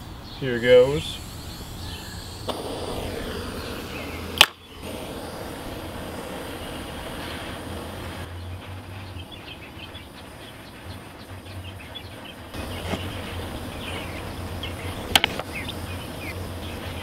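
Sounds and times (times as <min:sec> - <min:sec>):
propane torch hissing: 0:00.0 - 0:17.0
small birds chirping: 0:00.0 - 0:17.0
sharp click: 0:04.4 - 0:04.6, 0:15.1 - 0:15.5.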